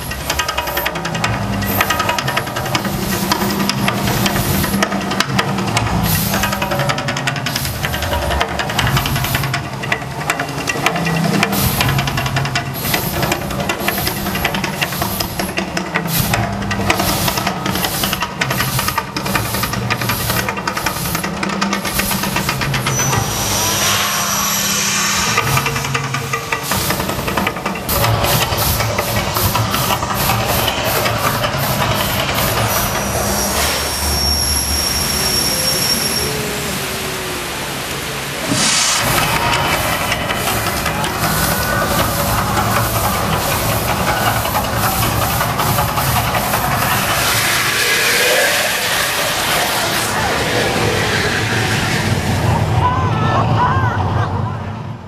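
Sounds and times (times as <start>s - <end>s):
fountain jets and gas flames hissing: 0.0s - 53.4s
low rumble: 21.9s - 34.7s, 36.3s - 55.0s
deep shifting rumble: 22.2s - 33.6s.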